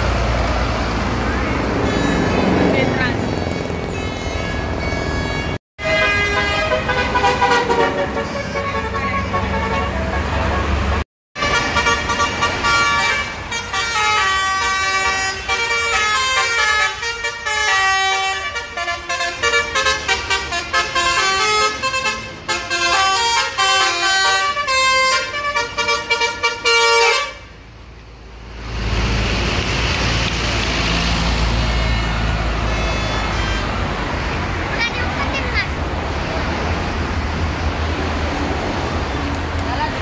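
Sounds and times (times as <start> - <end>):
air horns playing a melody: 4.1 - 27.5.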